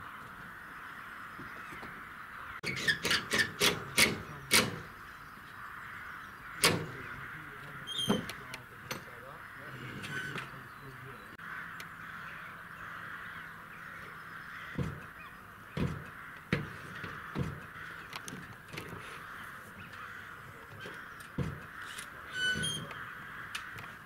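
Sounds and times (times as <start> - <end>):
crows cawing: 0.0 - 2.7, 3.9 - 24.0
low knocks and thumps: 14.7 - 15.1, 15.7 - 19.1, 21.3 - 21.8.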